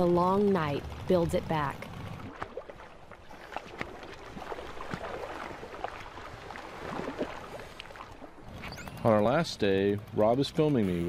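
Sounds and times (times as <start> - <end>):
water splashing and lapping: 0.0 - 11.0
small splashes and drips: 1.8 - 8.5.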